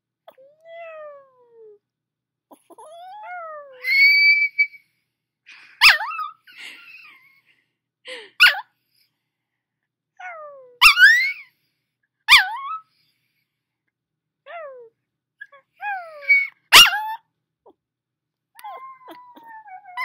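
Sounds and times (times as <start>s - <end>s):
puppy squeaky yelping howls: 2.7s - 4.8s, 5.8s - 6.5s, 8.4s - 8.6s, 10.2s - 11.5s, 12.3s - 12.8s, 14.5s - 17.3s, 18.6s - 20.0s.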